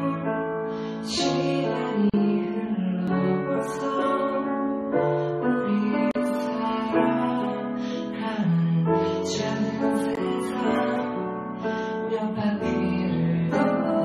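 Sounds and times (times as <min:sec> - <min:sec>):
piano accompaniment: 0:00.0 - 0:14.0
woman singing: 0:00.0 - 0:14.0.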